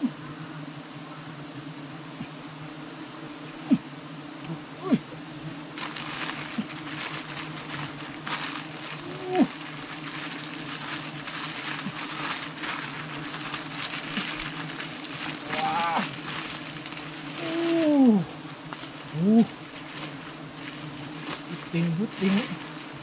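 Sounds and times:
bees buzzing drone: 0:00.0 - 0:23.0
bee zipping past: 0:00.1 - 0:23.0
rustling crackling noise: 0:05.7 - 0:23.0.

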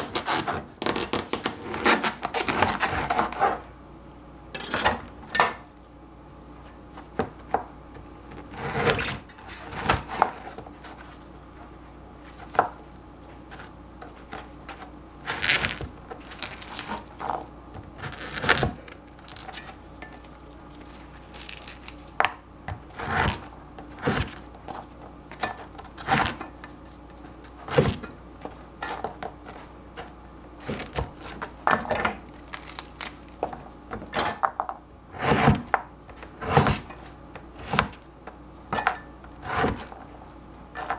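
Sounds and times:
cleaver chopping bread on board: 0:35.2 - 0:36.9.

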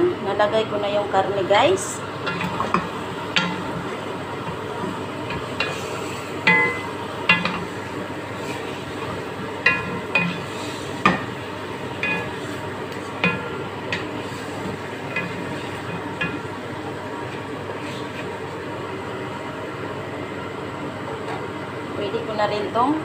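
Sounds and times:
meat sizzling in a pot: 0:01.4 - 0:20.8
spatula clinking on metal pot: 0:06.4 - 0:07.7, 0:09.6 - 0:11.2.

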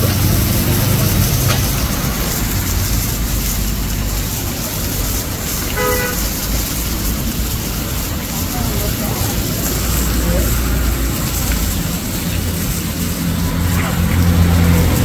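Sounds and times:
low engine rumble: 0:00.0 - 0:15.0
street noise: 0:00.0 - 0:15.0
vehicle horn toot: 0:05.7 - 0:06.3.

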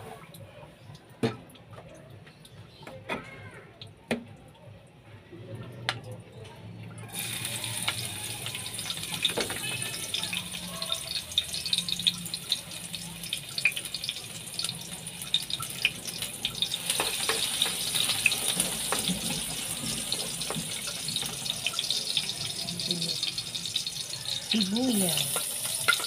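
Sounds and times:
garlic sizzling in oil: 0:07.1 - 0:26.0
spatula stirring in a wok: 0:25.2 - 0:26.0.

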